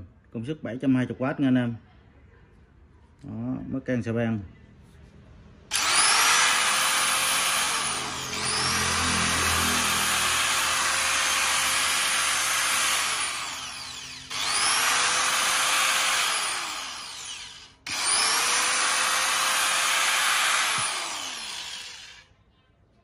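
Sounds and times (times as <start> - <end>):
angle grinder whining: 5.7 - 22.3.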